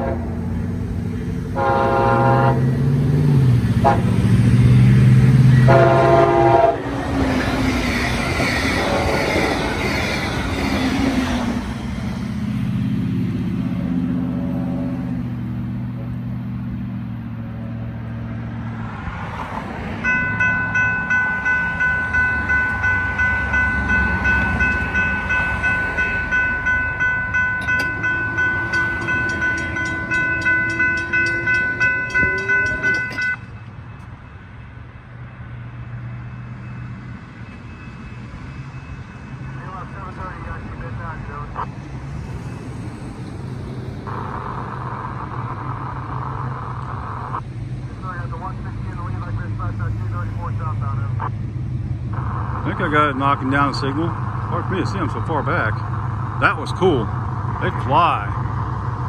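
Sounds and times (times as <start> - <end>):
train horn blast: 0.0 - 0.5, 1.5 - 2.8, 3.8 - 4.4, 5.5 - 7.1, 8.6 - 9.6, 27.7 - 33.5
train rushing past: 0.0 - 59.0
crossing warning bell ringing: 19.8 - 45.4.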